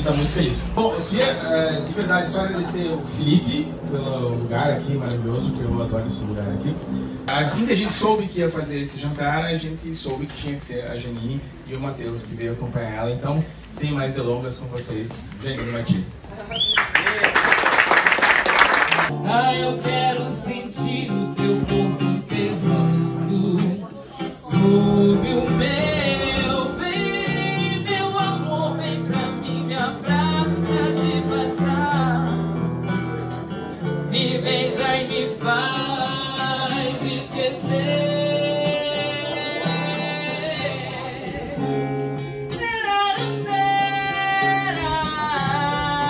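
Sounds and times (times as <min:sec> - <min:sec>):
acoustic guitar: 0:00.0 - 0:16.8, 0:17.7 - 0:46.0
woman singing: 0:19.1 - 0:46.0.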